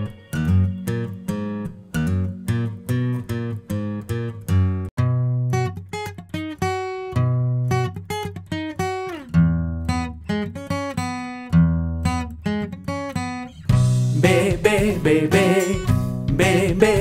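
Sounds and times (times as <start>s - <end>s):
acoustic guitar picking: 0.0s - 17.0s
children's song accompaniment: 14.1s - 17.0s.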